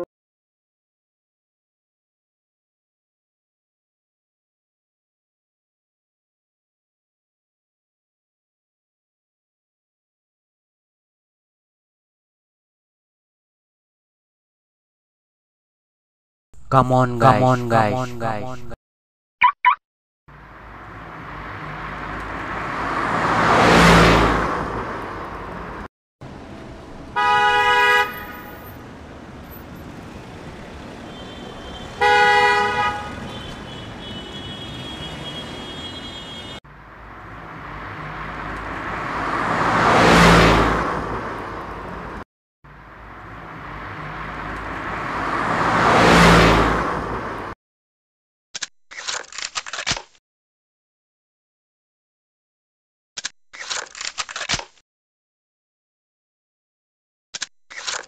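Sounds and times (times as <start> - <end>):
car driving past: 20.6 - 27.1, 29.0 - 32.0, 36.9 - 42.1, 43.0 - 47.5
car horn honks: 27.2 - 28.7, 30.9 - 36.6.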